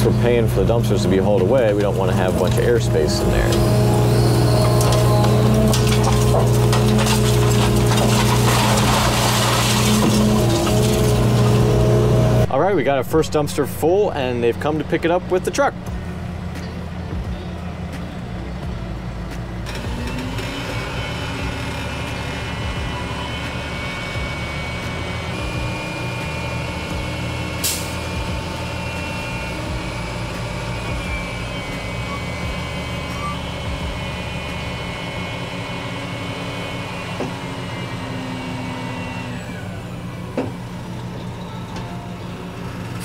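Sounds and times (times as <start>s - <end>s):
hoist whining: 0.0s - 12.5s
diesel engine under load: 0.0s - 43.0s.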